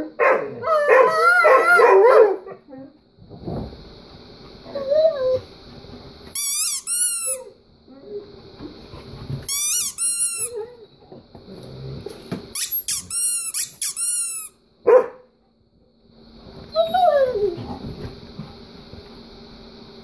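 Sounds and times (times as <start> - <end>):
squeaky dog toy squeaking: 6.4 - 7.5, 9.5 - 10.6, 12.6 - 14.6.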